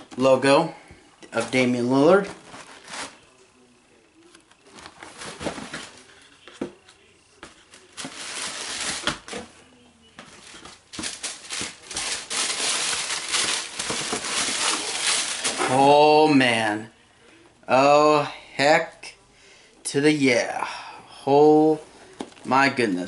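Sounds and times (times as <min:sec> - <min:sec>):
paper crinkling and rustling: 0:01.3 - 0:03.4, 0:04.2 - 0:09.5, 0:10.2 - 0:15.8.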